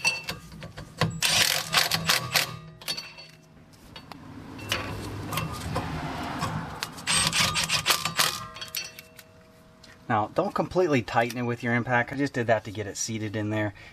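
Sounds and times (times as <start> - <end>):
impact wrench running: 1.0 - 2.6, 6.4 - 8.7.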